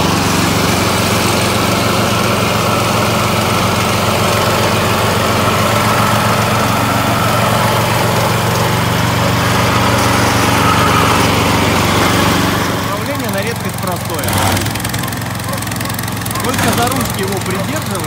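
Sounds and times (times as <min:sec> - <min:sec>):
brush mower engine running: 0:00.0 - 0:18.0.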